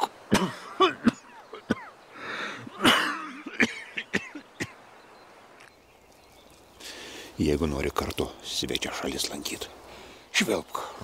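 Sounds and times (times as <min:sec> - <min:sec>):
man coughing: 0:00.3 - 0:01.9, 0:02.7 - 0:04.8.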